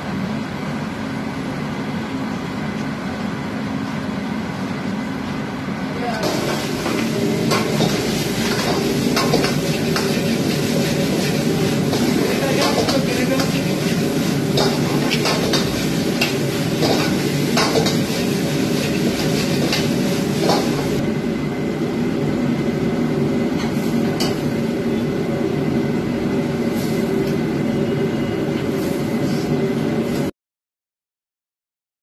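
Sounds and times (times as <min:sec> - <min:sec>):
gas wok burner and exhaust hood: 0:00.0 - 0:30.3.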